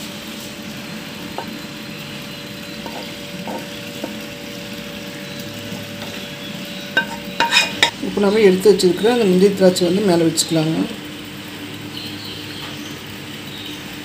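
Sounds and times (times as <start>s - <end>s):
steady hum: 0.0s - 12.2s
spatula scraping a pan: 1.2s - 8.0s.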